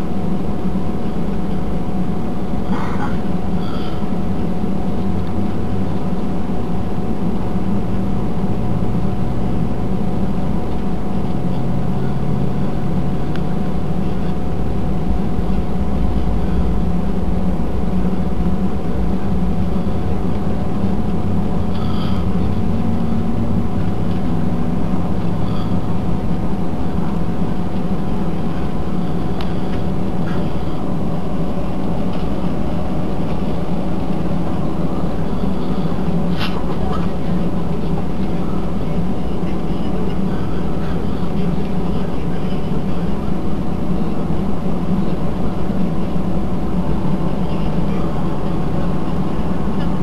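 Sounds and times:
jet cabin drone and rumble: 0.0s - 50.0s
low hum rising in pitch: 3.0s - 39.3s.

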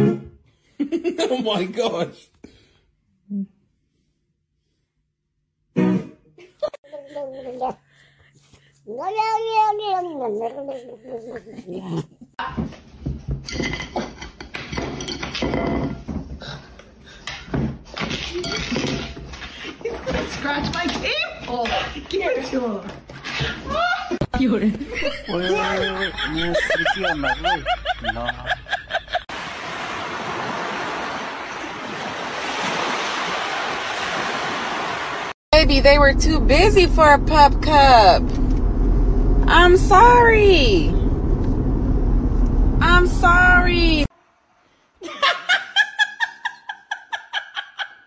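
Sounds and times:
plate clinking: 13.4s - 16.0s
ocean surf breaking: 29.2s - 35.4s.

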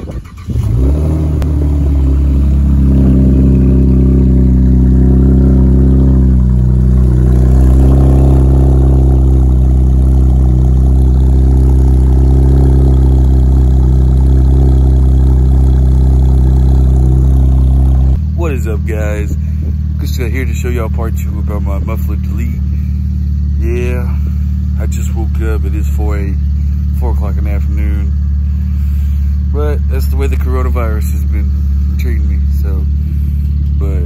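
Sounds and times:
loud deep car exhaust idling: 0.0s - 34.0s.

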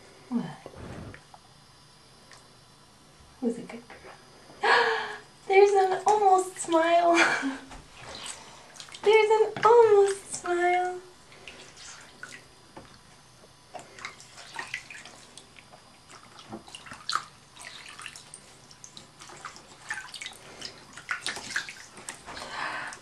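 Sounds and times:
bath water splashing: 13.8s - 23.0s.

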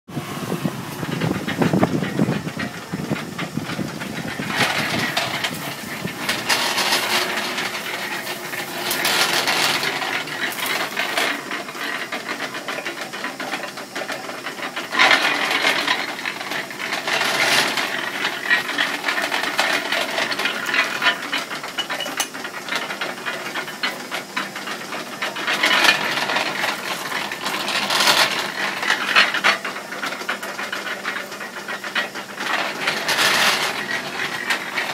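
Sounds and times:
gears and rollers rattling and grinding: 0.1s - 34.9s
cane stalks crunching in rollers: 0.2s - 34.9s.

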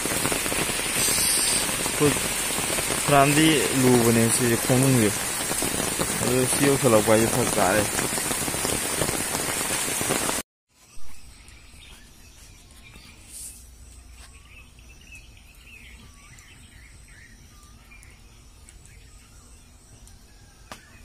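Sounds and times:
steady rain falling: 0.0s - 10.4s, 13.8s - 21.0s
birds chirping: 10.8s - 21.0s.

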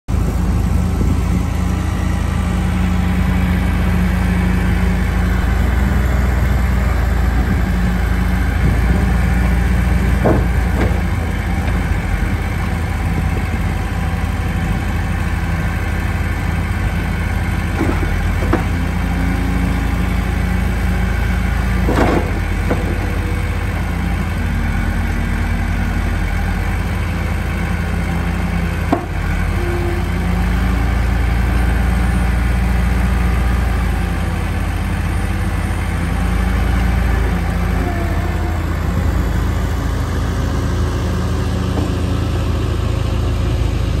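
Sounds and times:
diesel engine running: 0.1s - 44.0s
sharp knocks: 10.1s - 11.8s.

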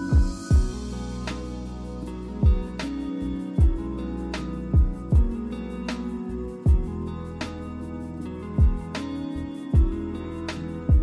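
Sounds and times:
deep drum beat: 0.0s - 0.9s, 2.4s - 2.9s, 3.6s - 4.0s, 4.8s - 5.5s, 6.7s - 7.0s, 8.6s - 9.0s, 9.8s - 10.1s.

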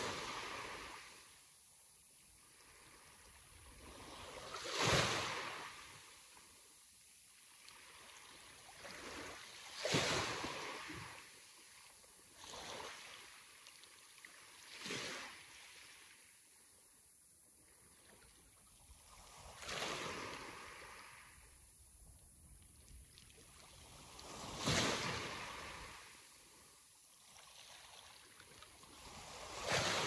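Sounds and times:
sea waves breaking: 23.6s - 26.2s, 27.3s - 30.0s.

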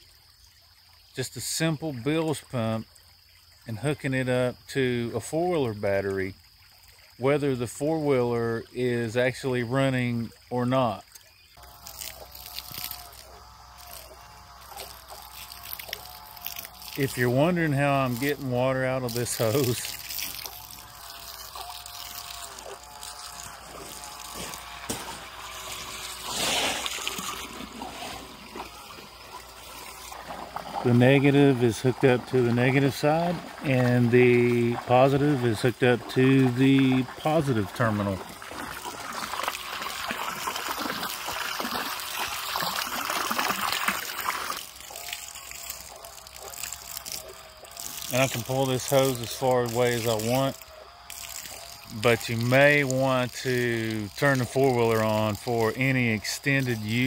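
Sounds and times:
stream water trickling: 0.0s - 57.0s
rush of water: 8.7s - 50.6s.

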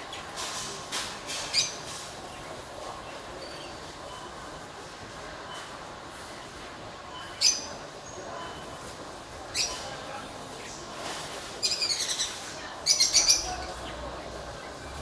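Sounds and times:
small birds chirping: 1.3s - 4.4s, 9.4s - 10.8s, 11.5s - 15.0s.

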